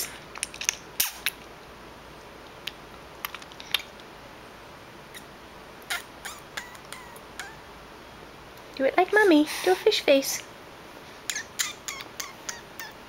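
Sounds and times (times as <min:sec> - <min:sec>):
lip smacks and mouth clicks: 0:11.3 - 0:13.0.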